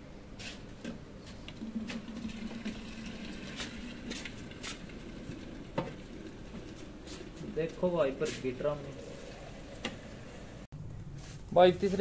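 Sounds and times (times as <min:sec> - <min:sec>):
milk pouring into metal can: 0:01.6 - 0:09.4.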